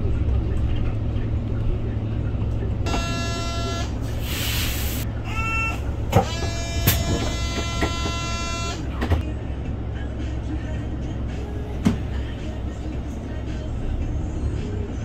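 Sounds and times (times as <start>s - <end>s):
bus engine idling: 0.0s - 15.0s
electronic tones: 2.9s - 4.0s
air hiss: 4.1s - 5.0s.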